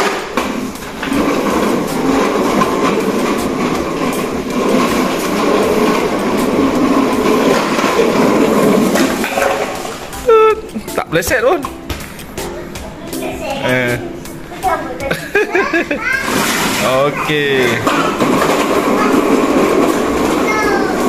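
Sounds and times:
plastic wheels rolling on concrete: 0:00.0 - 0:21.0.

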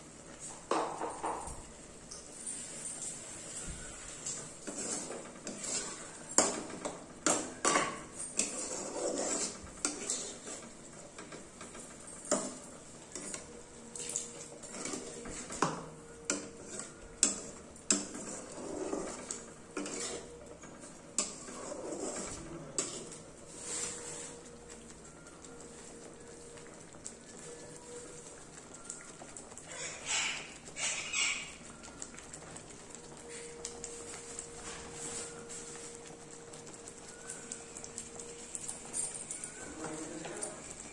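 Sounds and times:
metal spatula scraping iron pan: 0:04.2 - 0:06.7, 0:07.6 - 0:10.6, 0:16.3 - 0:20.4, 0:21.2 - 0:24.4.

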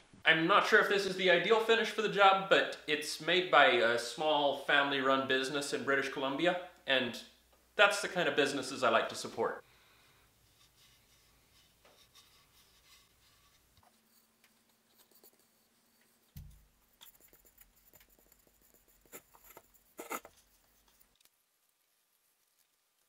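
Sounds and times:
fingers rubbing wax into wood: 0:10.5 - 0:21.2.

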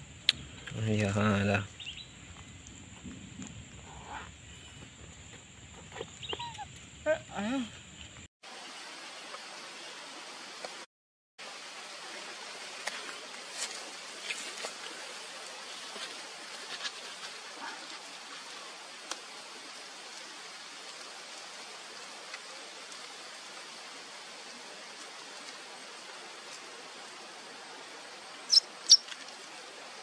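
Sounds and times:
background hiss: 0:00.0 - 0:30.0.

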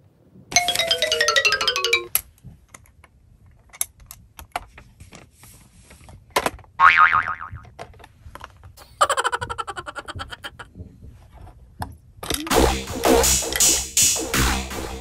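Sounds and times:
descending chime notes: 0:00.6 - 0:02.1.

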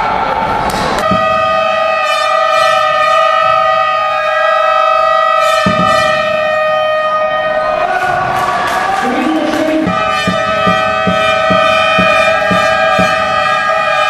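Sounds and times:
light percussion hits: 0:01.0 - 0:01.7, 0:05.6 - 0:06.4, 0:09.8 - 0:13.7
long held music note: 0:01.0 - 0:03.6.

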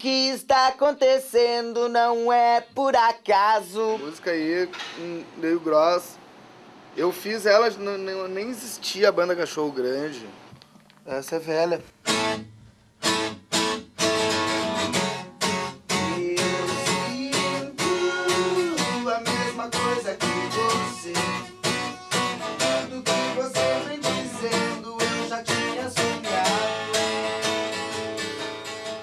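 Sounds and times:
acoustic guitar strumming chords: 0:12.0 - 0:29.0.

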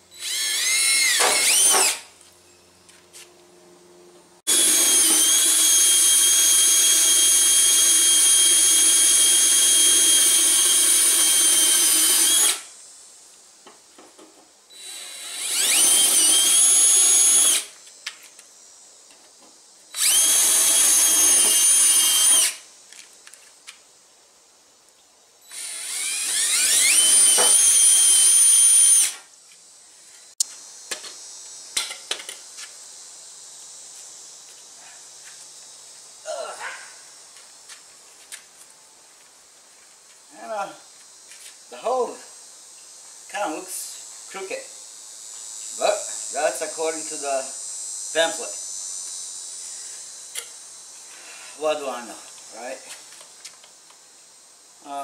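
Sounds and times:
cordless drill boring into metal: 0:00.2 - 0:02.1, 0:04.5 - 0:12.7, 0:14.7 - 0:17.7, 0:19.9 - 0:22.6, 0:25.5 - 0:29.2.

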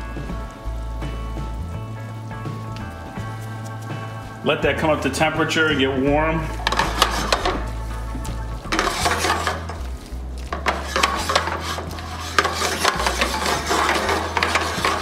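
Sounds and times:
pan shifted on stove grate: 0:06.5 - 0:07.7, 0:08.6 - 0:15.0
metal tongs scraping a skillet: 0:06.6 - 0:07.7, 0:08.7 - 0:15.0.

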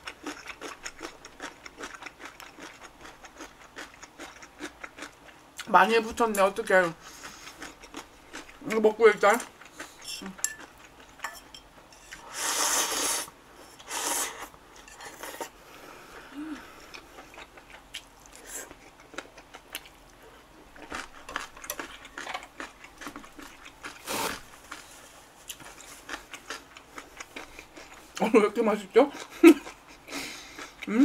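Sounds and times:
chewing: 0:00.0 - 0:05.7, 0:07.0 - 0:08.6, 0:16.8 - 0:28.2, 0:29.1 - 0:30.9
noodles being slurped: 0:12.2 - 0:15.5.

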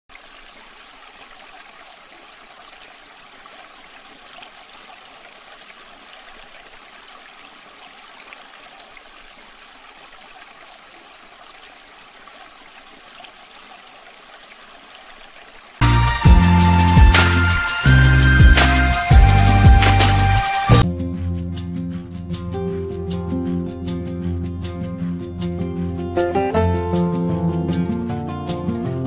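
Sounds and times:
fountain water trickling: 0:00.1 - 0:15.8.

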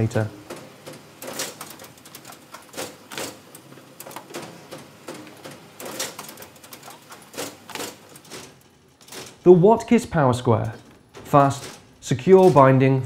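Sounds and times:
machine clacking and clicking: 0:00.0 - 0:09.5, 0:10.5 - 0:12.9.

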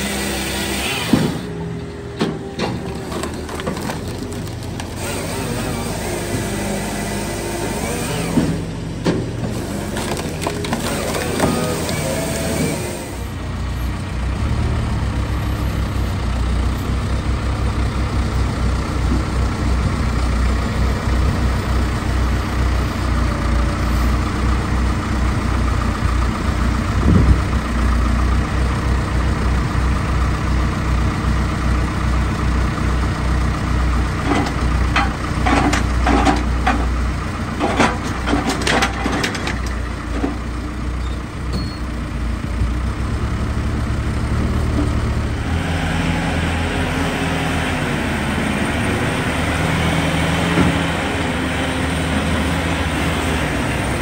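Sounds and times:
heavy machinery engine running: 0:00.0 - 0:54.0
log clanks and knocks: 0:34.2 - 0:37.0, 0:37.6 - 0:40.5.

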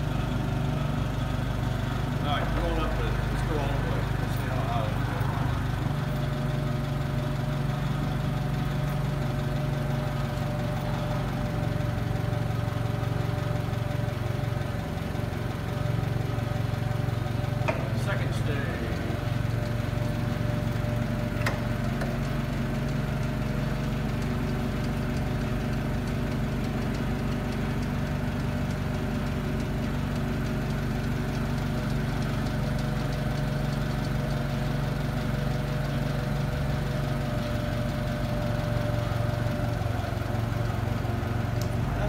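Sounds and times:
forklift engine running: 0:00.0 - 0:42.0.

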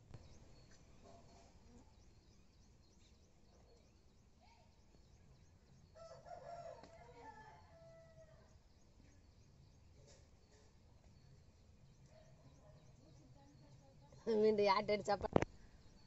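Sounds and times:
faint high bird chirps: 0:00.0 - 0:14.4
rooster crowing: 0:06.0 - 0:08.5.

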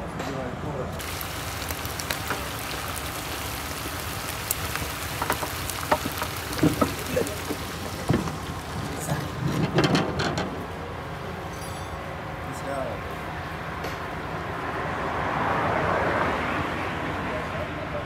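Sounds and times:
hissing from cooking pot: 0:01.0 - 0:09.1.

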